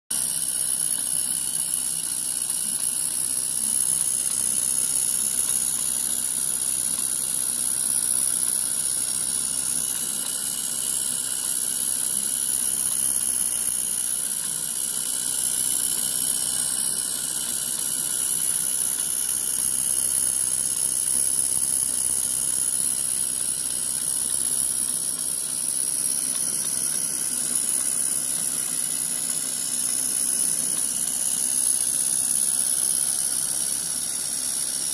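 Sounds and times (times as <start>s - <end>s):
gas burner hissing: 0.2s - 34.9s.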